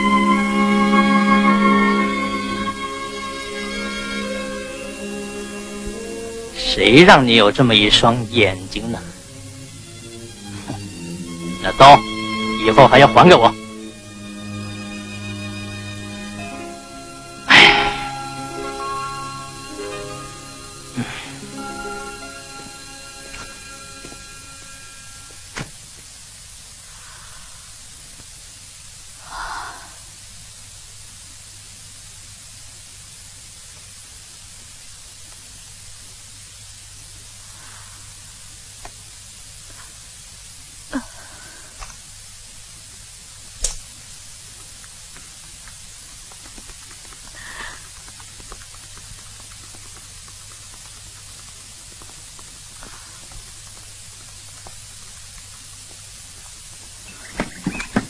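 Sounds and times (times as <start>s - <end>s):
low hum: 0.0s - 25.5s
old film soundtrack hiss: 0.0s - 58.0s
sharp click: 43.6s - 43.8s.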